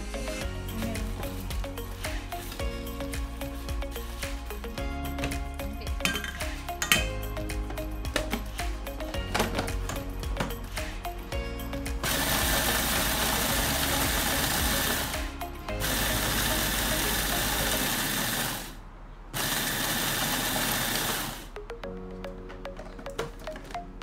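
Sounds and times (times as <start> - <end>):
food processor motor grinding: 12.0 - 15.2, 15.8 - 18.8, 19.4 - 21.4.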